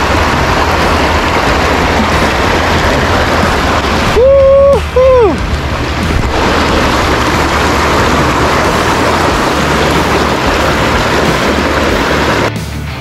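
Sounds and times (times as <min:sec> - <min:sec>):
low uneven rumble: 0:00.0 - 0:12.5
stream water rushing: 0:00.0 - 0:12.5.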